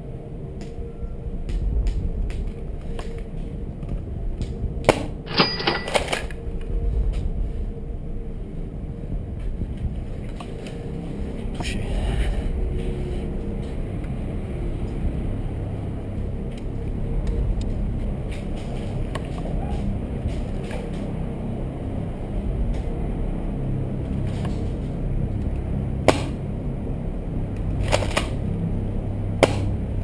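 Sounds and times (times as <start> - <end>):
wind rumble on camera microphone: 0.0 - 30.0
sharp knocks with metallic ring: 5.3 - 6.0.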